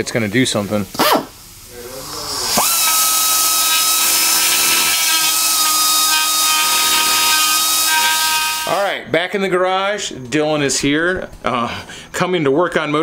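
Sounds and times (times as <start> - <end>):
hiss of air: 0.0 - 6.1
pneumatic die grinder whining: 1.0 - 8.8
grinder bit grinding metal: 1.8 - 8.8.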